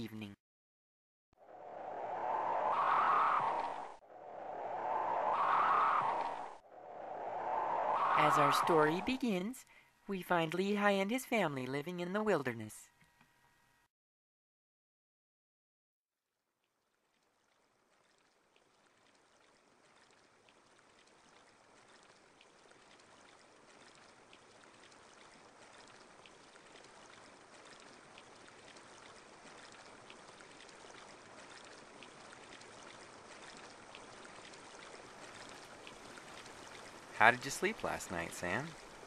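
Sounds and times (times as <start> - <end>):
stream trickling water: 16.5 - 39.0.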